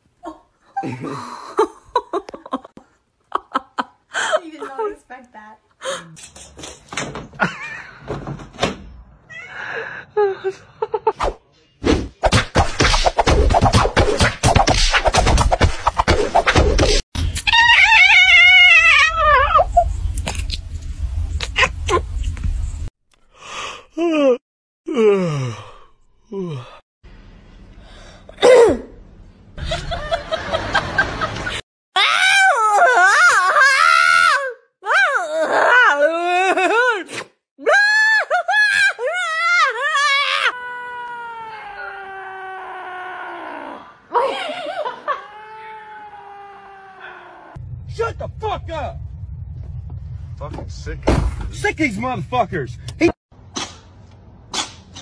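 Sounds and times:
cat crying: 0:17.5 - 0:19.8.

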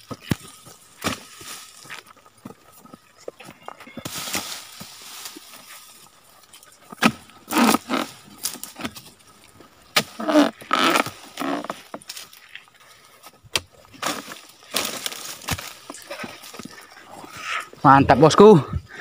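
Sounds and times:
chisel chopping palm stalks: 0:00.0 - 0:01.5, 0:04.0 - 0:05.5, 0:06.9 - 0:09.2, 0:09.9 - 0:12.2, 0:13.5 - 0:16.1
crunching scrape: 0:03.9 - 0:09.3, 0:09.9 - 0:12.7.

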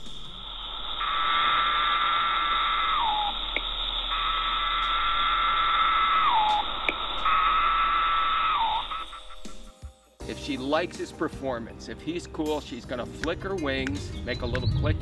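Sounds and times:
cicada buzzing call: 0:00.0 - 0:09.8.

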